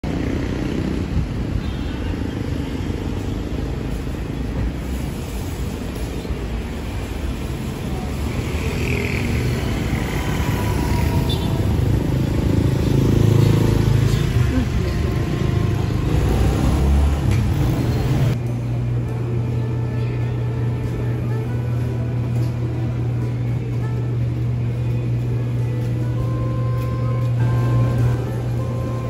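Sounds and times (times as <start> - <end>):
passing cars and motorcycles: 0.0 - 18.4.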